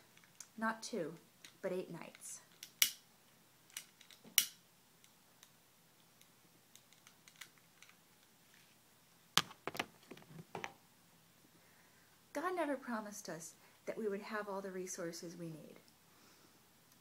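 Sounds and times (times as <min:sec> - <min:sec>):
sharp clicks and knocks: 0:09.4 - 0:10.8.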